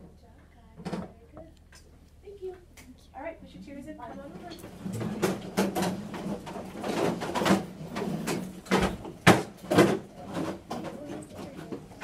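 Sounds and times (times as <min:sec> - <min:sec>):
sharp knocks and thumps: 0:05.0 - 0:11.1.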